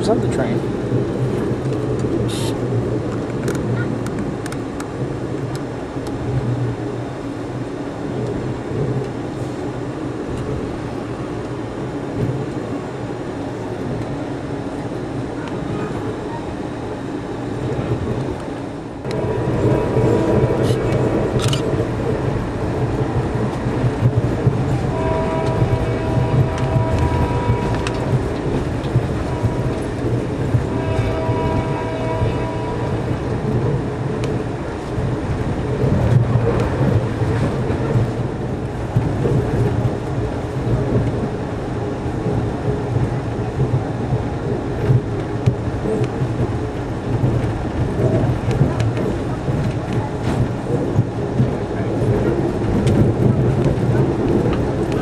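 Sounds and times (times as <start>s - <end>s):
train coach rumbling on rails: 0.0s - 55.0s
locomotive horn blasts: 24.9s - 33.1s.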